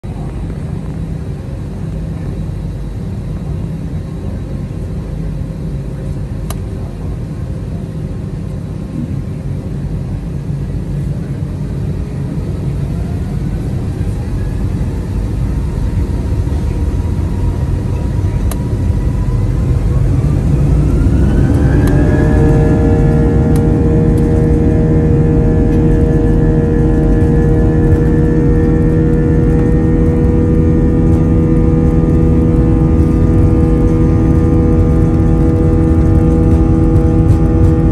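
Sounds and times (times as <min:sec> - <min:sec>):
jet engine rumble in cabin: 0:00.0 - 0:37.9
jet engine whine rising: 0:06.8 - 0:37.9.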